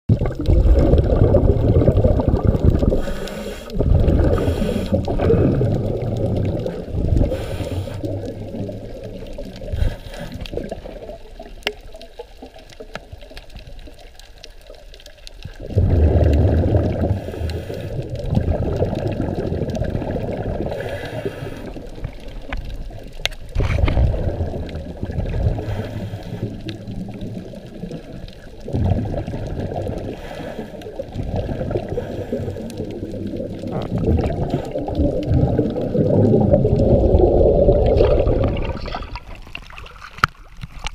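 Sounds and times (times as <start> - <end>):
muffled underwater rushing water: 0.1 - 40.9
faint clicks: 2.7 - 15.6, 20.7 - 24.8.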